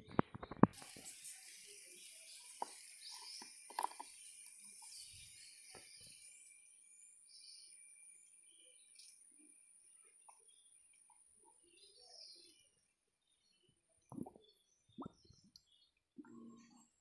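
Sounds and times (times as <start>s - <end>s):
high-pitched insect drone: 0.8s - 10.7s.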